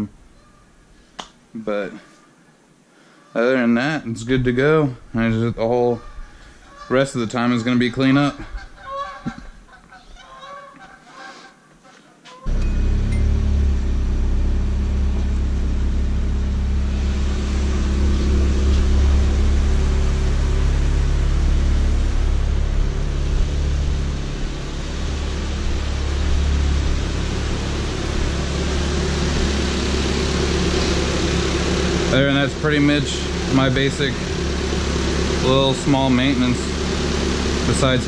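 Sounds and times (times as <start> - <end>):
car engine idling: 12.5 - 38.0
steady hiss: 16.2 - 38.0.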